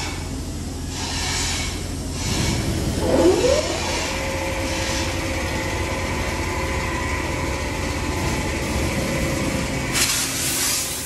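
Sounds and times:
low rumble: 0:02.2 - 0:10.0
motor whining and humming: 0:02.7 - 0:09.9.

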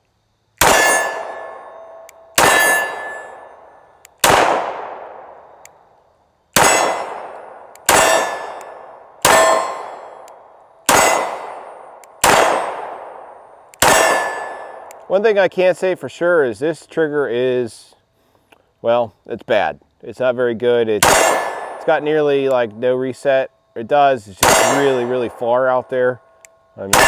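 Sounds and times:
pistol shots with echo: 0:00.6 - 0:05.6, 0:06.5 - 0:15.1, 0:21.0 - 0:22.5, 0:24.4 - 0:25.8.

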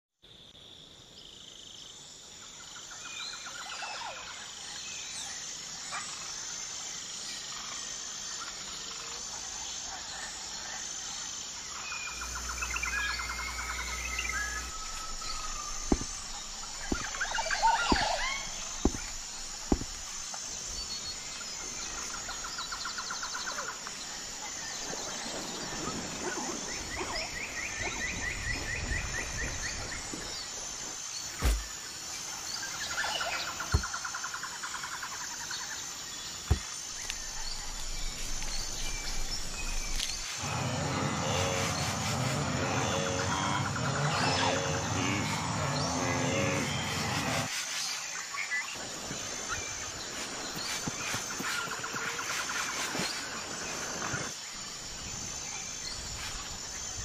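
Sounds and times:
high-pitched insect buzz: 0:10.9 - 0:25.0
birds calling and trilling: 0:11.6 - 0:57.0.

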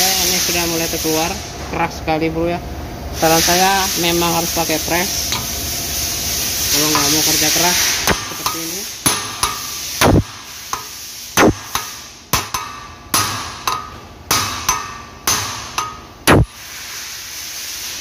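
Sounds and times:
hammer striking steel drift: 0:08.0 - 0:16.6
heavier thuds: 0:16.3 - 0:16.5.

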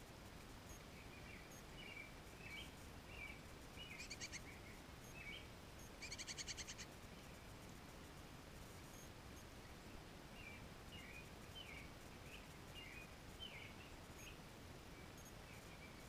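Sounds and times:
songbirds chirping: 0:00.0 - 0:16.0
rapid bird chattering: 0:03.8 - 0:04.6, 0:06.0 - 0:06.9.

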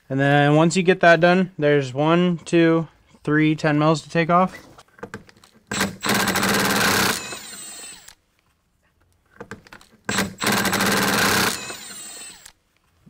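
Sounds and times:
cordless impact wrench hammering: 0:05.0 - 0:08.1, 0:09.4 - 0:12.6.

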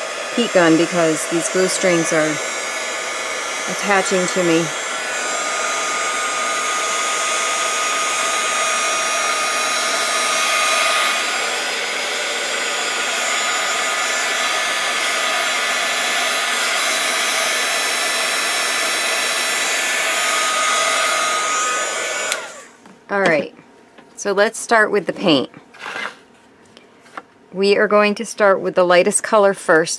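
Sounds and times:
heat gun blowing hot air: 0:00.0 - 0:22.8.

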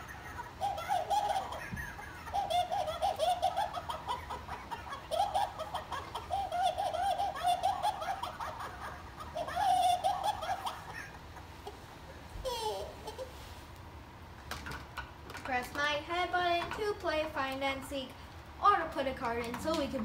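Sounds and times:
high-pitched giggling: 0:00.0 - 0:13.4.

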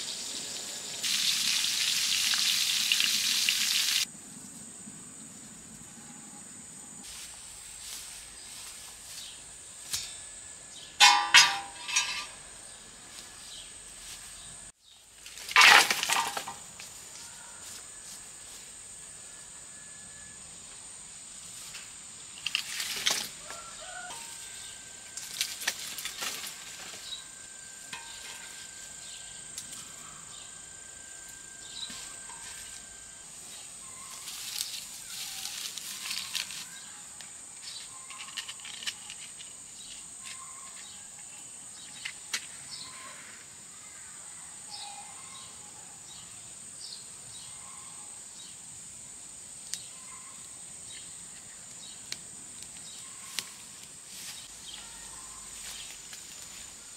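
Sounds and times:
high-pitched insect chorus: 0:00.0 - 0:15.4, 0:16.1 - 0:56.9.

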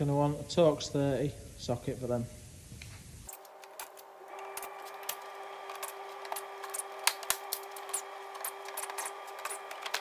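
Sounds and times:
cordless tool hum: 0:03.3 - 0:10.0.

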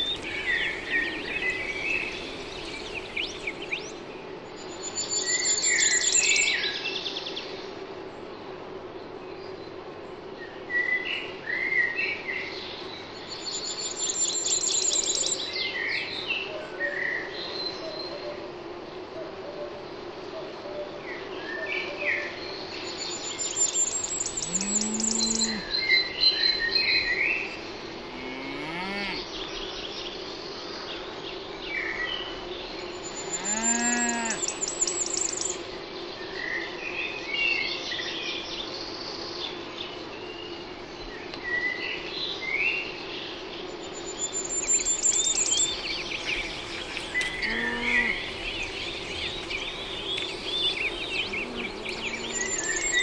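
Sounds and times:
birds chirping and trilling: 0:00.0 - 0:06.5, 0:22.8 - 0:30.5, 0:32.6 - 0:35.6, 0:43.2 - 0:53.0
cattle mooing: 0:24.5 - 0:25.7, 0:28.0 - 0:29.3, 0:33.4 - 0:34.5, 0:46.1 - 0:53.0.

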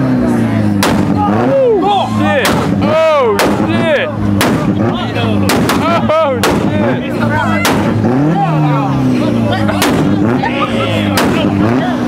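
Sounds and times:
loud sharp bangs: 0:00.7 - 0:01.4, 0:02.4 - 0:08.3, 0:09.7 - 0:10.3, 0:11.1 - 0:11.6.

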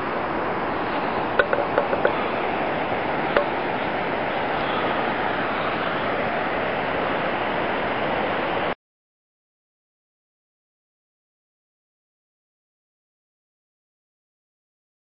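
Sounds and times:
steady rushing noise: 0:00.0 - 0:08.8.

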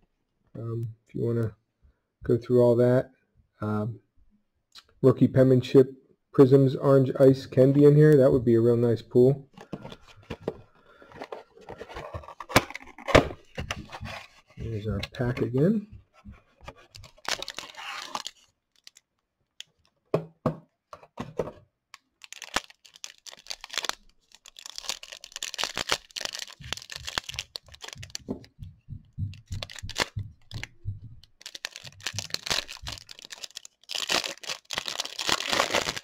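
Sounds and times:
plastic wrapper crinkling and tearing: 0:16.8 - 0:19.9, 0:21.9 - 0:28.5, 0:29.4 - 0:30.7, 0:31.4 - 0:36.0.

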